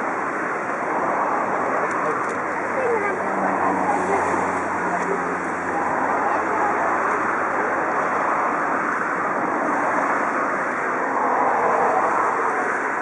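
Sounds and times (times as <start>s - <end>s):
crowd murmur: 1.3s - 9.6s.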